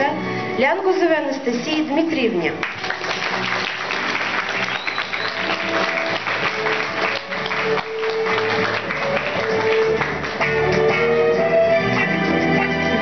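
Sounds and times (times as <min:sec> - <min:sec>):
applause: 0:02.6 - 0:11.2, 0:11.8 - 0:13.0
instrumental music with held notes: 0:02.7 - 0:13.0.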